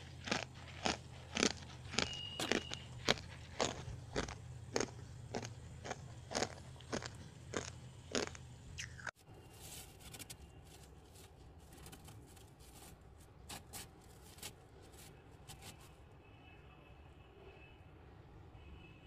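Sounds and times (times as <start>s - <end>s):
fingers crunching granular frost: 0.0s - 8.4s
freezer frost being bitten: 0.0s - 8.4s.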